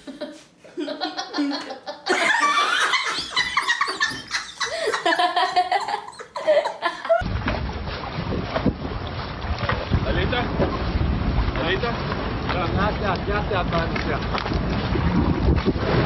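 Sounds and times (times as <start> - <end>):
woman laughing: 0.0 - 7.2
wind buffeting microphone: 7.2 - 16.0.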